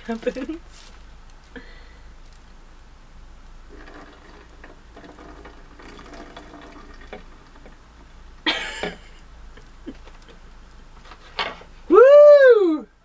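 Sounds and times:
liquid pouring: 3.7 - 7.9.

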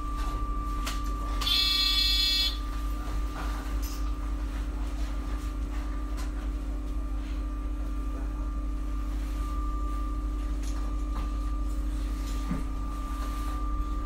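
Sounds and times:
bus door warning buzzer: 1.2 - 2.7.

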